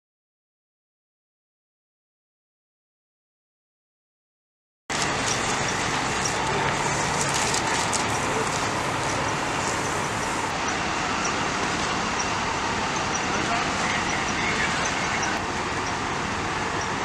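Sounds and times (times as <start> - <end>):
emergency vehicles idling: 4.9 - 17.0
road traffic noise: 4.9 - 17.0.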